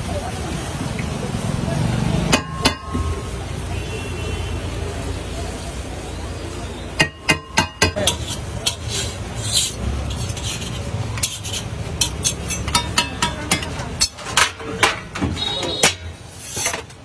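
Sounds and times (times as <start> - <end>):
metal spatula scraping a griddle: 7.3 - 17.0.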